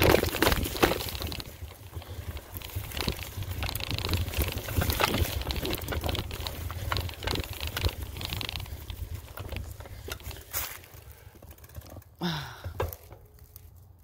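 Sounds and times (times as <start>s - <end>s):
low wind rumble on microphone: 0.0s - 11.1s
bike rattling on rough trail: 0.0s - 14.0s.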